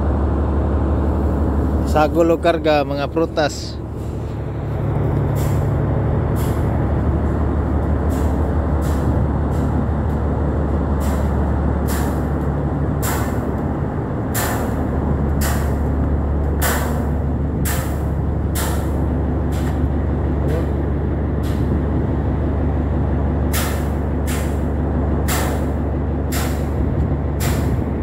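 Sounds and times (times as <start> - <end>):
cargo ship rumble: 0.0 - 28.0.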